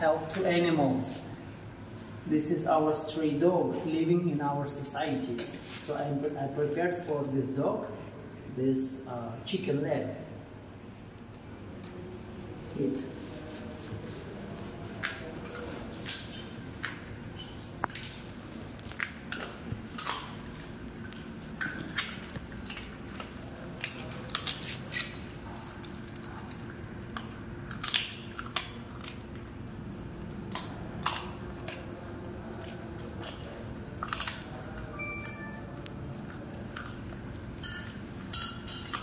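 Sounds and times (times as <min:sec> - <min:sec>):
dog chewing bone: 0:14.0 - 0:34.9, 0:35.8 - 0:39.0.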